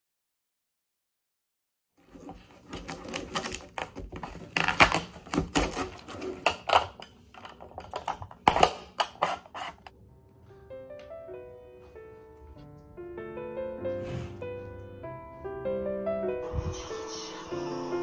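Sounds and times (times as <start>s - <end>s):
packaging crinkling: 2.0s - 9.9s.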